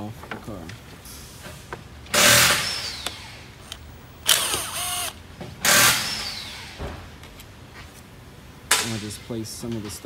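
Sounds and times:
power driver whirring: 2.2s - 6.9s.

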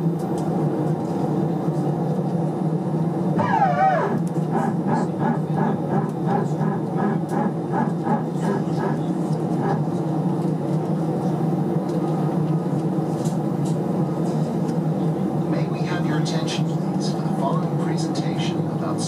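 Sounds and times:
aircraft cabin hum: 0.0s - 15.7s
short pulsing tone: 3.4s - 4.7s.

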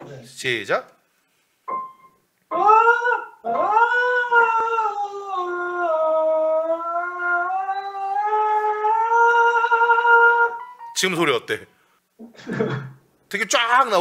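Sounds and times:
man singing falsetto vowel: 2.5s - 10.9s.

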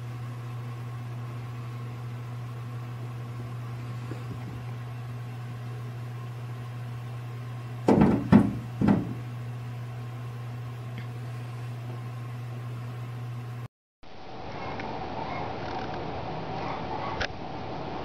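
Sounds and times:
steady low hum: 0.0s - 18.0s
loud knocks: 7.8s - 9.3s.

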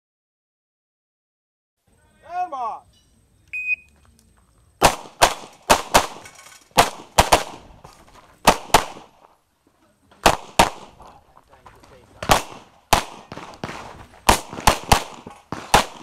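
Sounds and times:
shot timer beep: 3.5s - 3.9s
pistol shots: 4.8s - 7.8s, 8.4s - 9.3s, 10.2s - 11.2s, 12.2s - 16.0s.

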